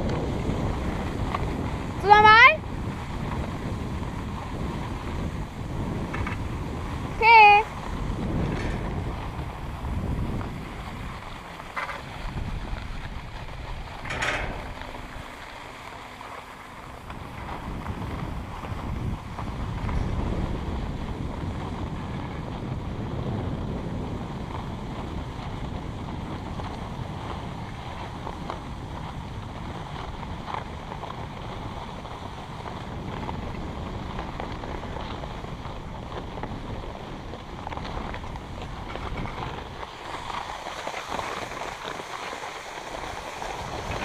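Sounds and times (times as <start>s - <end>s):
skis sliding over snow: 0.0s - 44.0s
wind buffeting microphone: 0.0s - 44.0s
lift cable rattling over pulleys: 8.1s - 18.0s.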